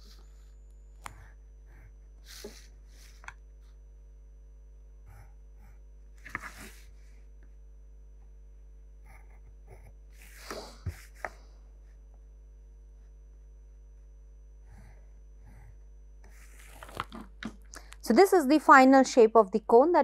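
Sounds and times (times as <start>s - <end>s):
low electrical hum: 0.0s - 20.0s
pencil scratching on paper: 9.0s - 11.3s.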